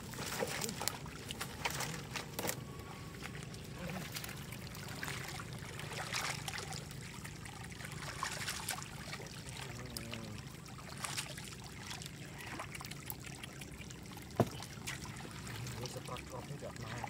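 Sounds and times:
hands splashing in muddy water: 0:03.9 - 0:06.8, 0:07.9 - 0:09.3.

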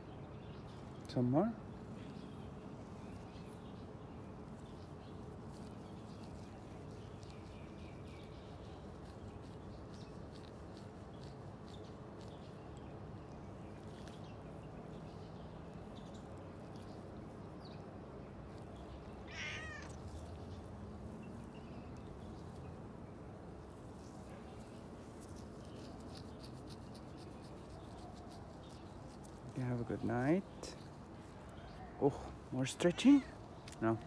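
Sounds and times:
cat meowing: 0:19.2 - 0:20.0.

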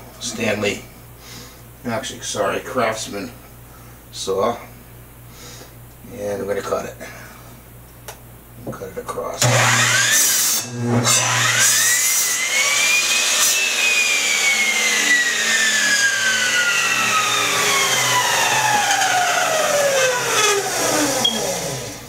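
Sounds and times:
electric saw motor whine: 0:09.4 - 0:22.0.

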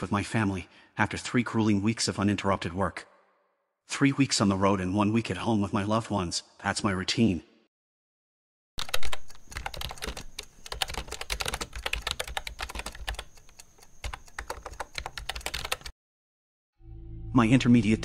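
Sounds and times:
keyboard typing clicks: 0:08.8 - 0:15.9.

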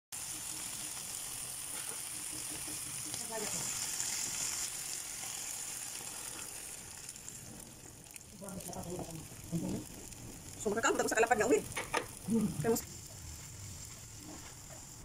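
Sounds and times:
food sizzling in hot oil: 0:00.1 - 0:15.0.

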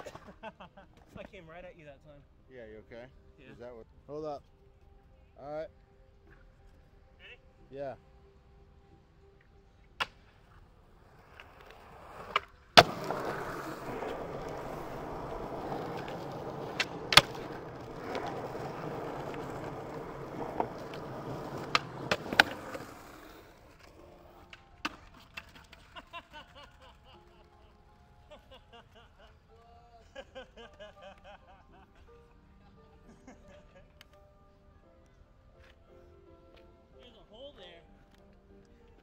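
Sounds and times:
skateboard wheels rolling on pavement: 0:00.0 - 0:01.4, 0:09.1 - 0:29.6
sharp skateboard clacks: 0:09.9 - 0:26.1.

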